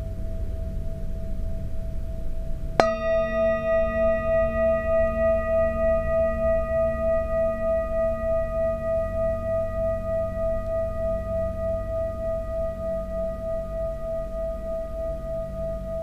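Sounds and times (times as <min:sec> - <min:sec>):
metal singing bowl ringing: 0:02.8 - 0:16.0.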